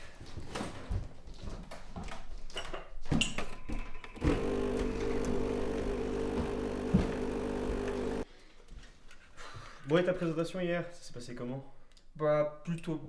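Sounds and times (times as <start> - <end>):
tea machine pump humming: 4.2 - 8.2.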